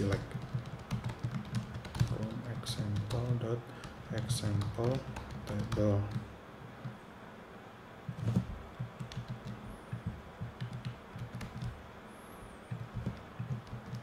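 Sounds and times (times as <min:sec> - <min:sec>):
keyboard keystrokes: 0:00.0 - 0:06.2, 0:08.2 - 0:11.8, 0:12.7 - 0:14.0.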